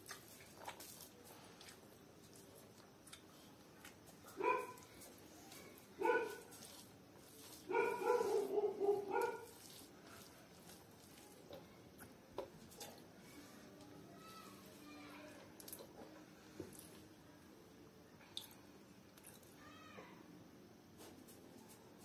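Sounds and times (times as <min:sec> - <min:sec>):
dog barking: 0:04.4 - 0:04.8, 0:06.0 - 0:06.5, 0:07.7 - 0:09.6.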